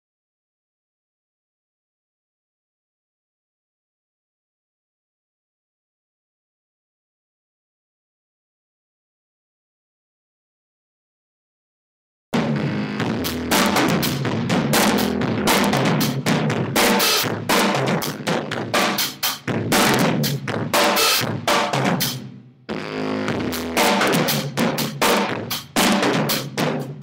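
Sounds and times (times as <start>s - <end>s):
sustained low amplified notes: 12.4s - 16.8s
drum kit with crashing cymbals: 12.4s - 22.5s, 23.3s - 27.0s
band playing loud: 12.4s - 26.6s.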